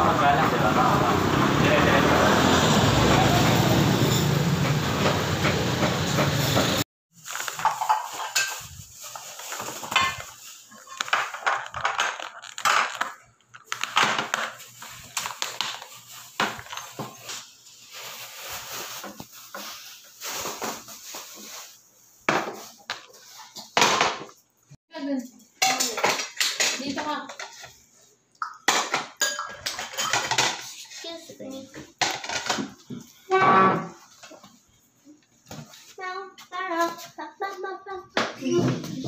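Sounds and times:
street traffic noise: 0.0 - 6.8.

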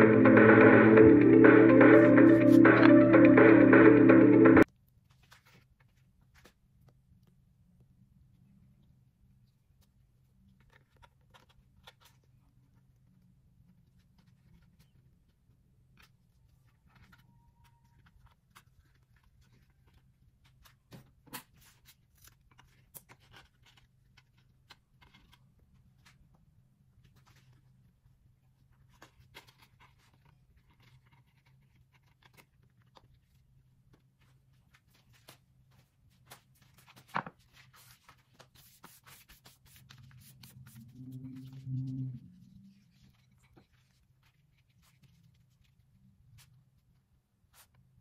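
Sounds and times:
low steady hum: 39.9 - 45.0.

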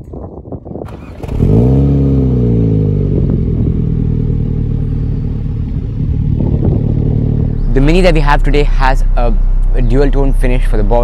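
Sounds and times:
car engine revving and idling: 0.9 - 11.0.

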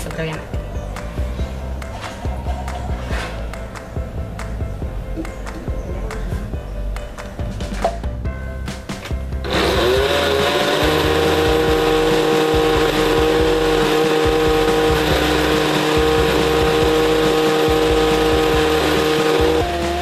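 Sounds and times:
blender motor running: 9.4 - 20.0.

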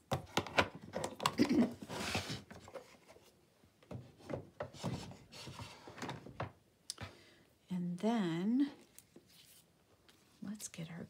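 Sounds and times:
rub across a surface: 9.3 - 9.7.

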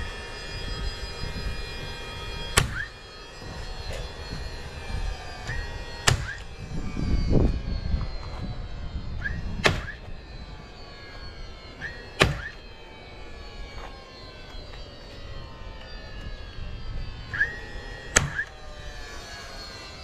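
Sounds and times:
tool motor whirring: 0.0 - 20.0
nailer firing sharp crack: 2.6 - 2.9, 6.0 - 6.4, 9.6 - 10.0, 11.8 - 12.6, 18.1 - 18.5.

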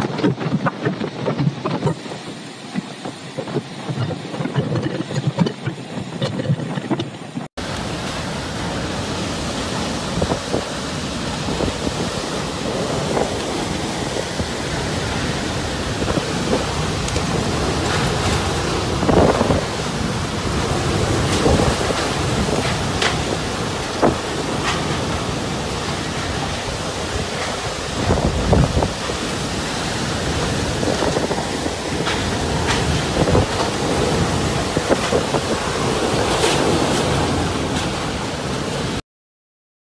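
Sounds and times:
strong wind: 0.0 - 39.0
heavy rain: 7.6 - 39.0.

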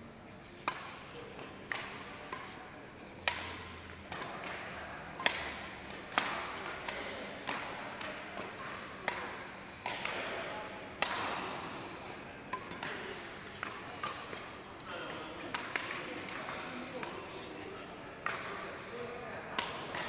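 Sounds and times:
badminton racket smacks echoing: 3.2 - 10.4, 11.0 - 11.8, 12.5 - 14.4.

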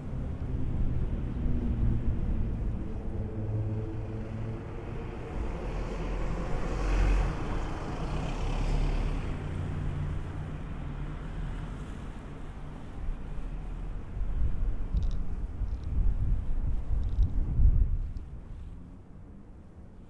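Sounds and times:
low traffic engine hum: 0.0 - 20.0
vehicle passing close by: 0.1 - 12.9.

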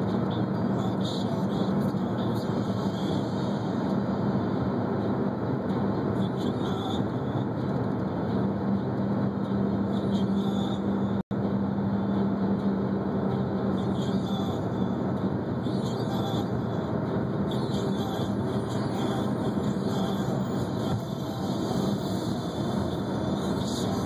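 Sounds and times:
car driving at speed: 0.0 - 24.0.

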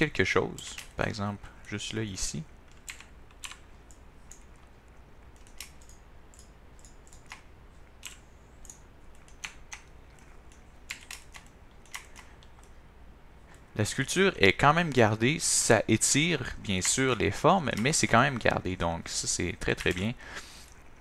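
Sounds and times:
keyboard key presses: 5.3 - 12.7.

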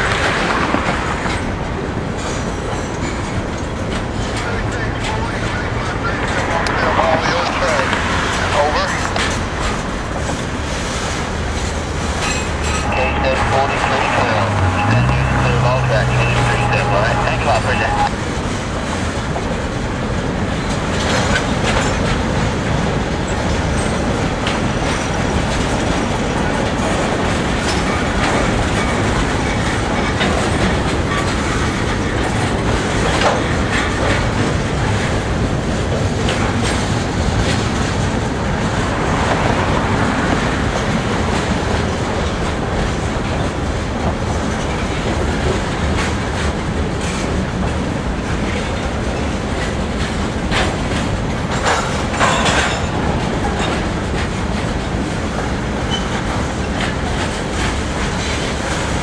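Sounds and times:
train wheels rumbling on rail: 0.0 - 59.0
wheels clicking over rail joints: 19.4 - 59.0.

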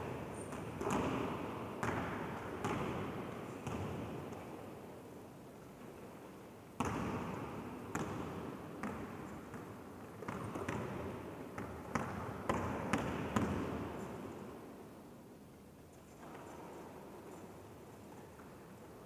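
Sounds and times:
basketball bouncing in echoing hall: 0.0 - 4.8, 6.7 - 14.5.

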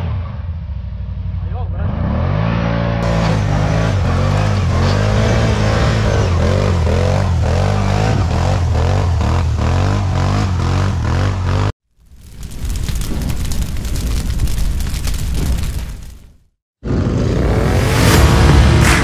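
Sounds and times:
quad bike engine revving: 1.8 - 11.7.

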